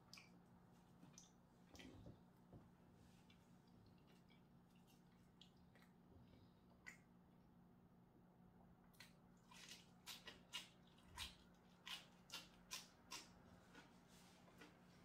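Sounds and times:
person chewing crunchy food: 9.0 - 14.0.

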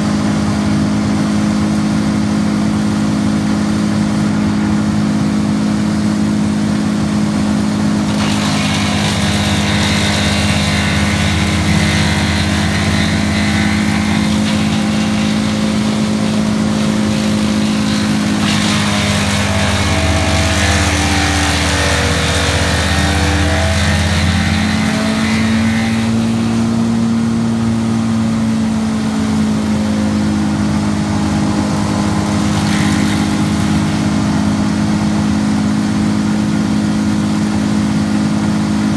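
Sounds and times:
chipper engine running: 0.0 - 38.9
branches being chipped: 8.1 - 25.6.

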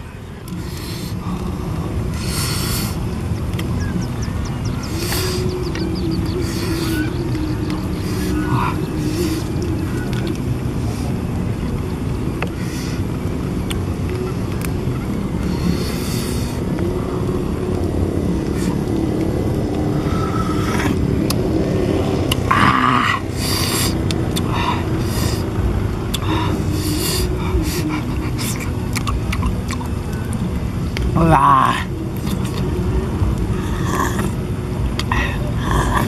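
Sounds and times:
low rumble: 0.0 - 36.0
wavering drone: 0.0 - 36.0
man slurping and smacking: 26.1 - 29.9.

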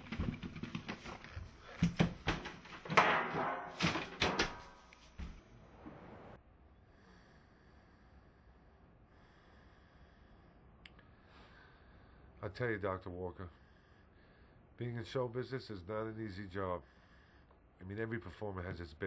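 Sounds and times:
loud knocks and thumps: 1.8 - 4.8
faint steady hum: 4.9 - 19.0.

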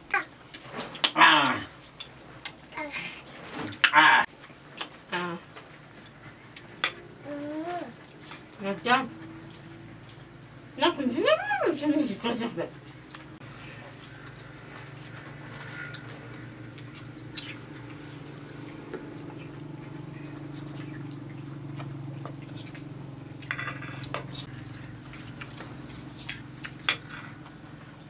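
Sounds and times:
steady low hum: 4.6 - 28.0.

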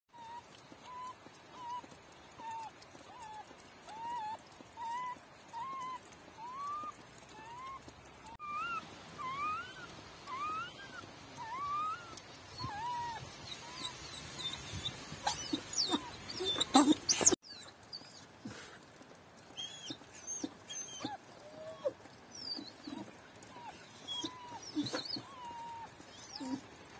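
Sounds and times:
puppy whimpering: 0.1 - 26.9.

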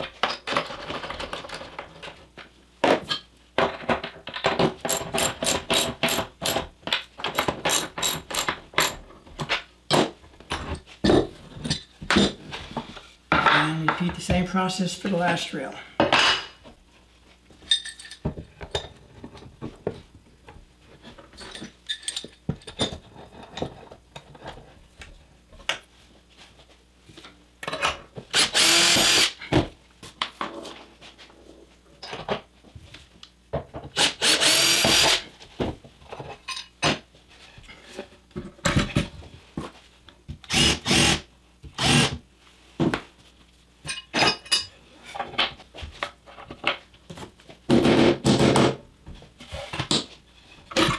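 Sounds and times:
cordless drill running: 28.3 - 29.4, 34.0 - 35.2, 40.5 - 41.2, 41.8 - 42.2.

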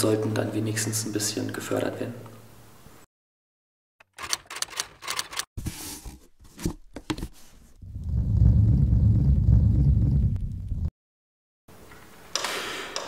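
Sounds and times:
sharp clicks and knocks: 4.0 - 5.5
loud low rumble: 7.8 - 10.9.

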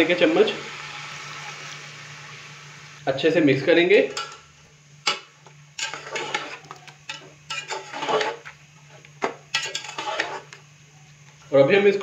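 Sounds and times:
metal spoon scraping pot: 5.8 - 8.5, 9.5 - 10.6.

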